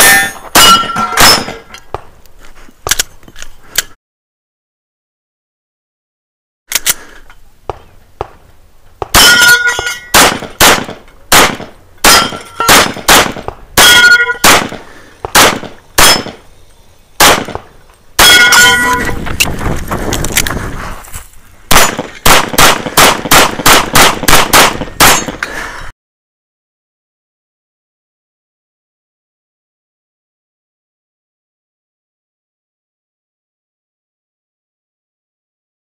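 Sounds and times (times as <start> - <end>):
steel plates clanging: 0.0 - 1.7, 9.2 - 10.2, 12.1 - 12.8, 18.3 - 19.2
rapid pistol shots: 10.1 - 16.4, 17.2 - 18.5, 21.7 - 25.4.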